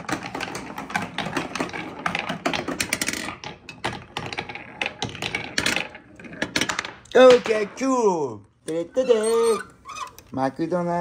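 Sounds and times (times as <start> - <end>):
toy balls clattering down marble run: 0.0 - 7.5.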